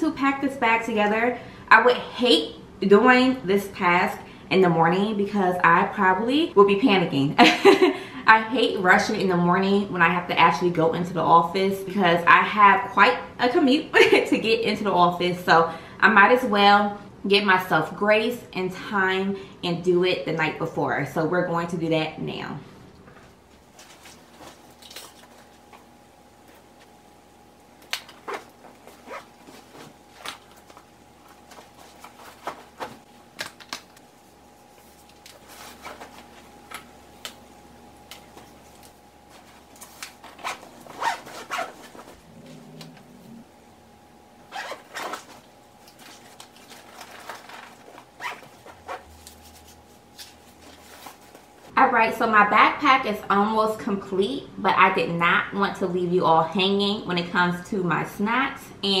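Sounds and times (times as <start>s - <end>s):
faint steady hum: 0.0s - 59.0s
backpack rustling: 28.0s - 34.1s, 34.7s - 36.6s, 38.3s - 42.8s, 44.5s - 51.7s
zipper pulls: 28.1s - 30.4s, 40.2s - 43.4s, 44.5s - 45.4s, 48.1s - 49.6s.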